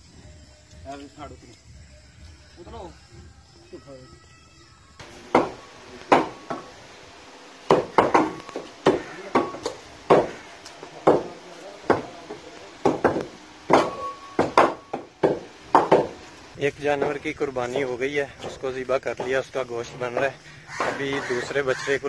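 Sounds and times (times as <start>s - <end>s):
cleavers chopping meat on wood: 5.1s - 6.7s, 7.7s - 16.2s, 20.2s - 21.8s.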